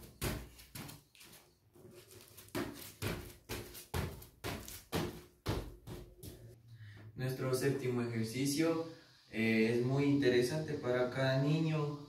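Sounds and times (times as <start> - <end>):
sneakers thudding on a mat: 0.0 - 1.0.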